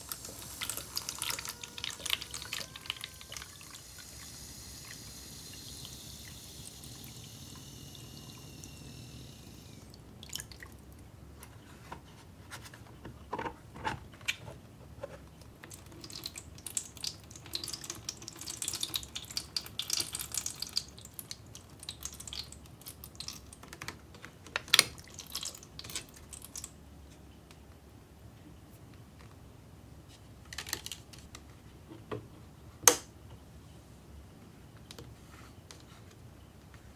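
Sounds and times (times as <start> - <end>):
water pouring into plastic mold: 0.0 - 10.8, 15.7 - 23.6.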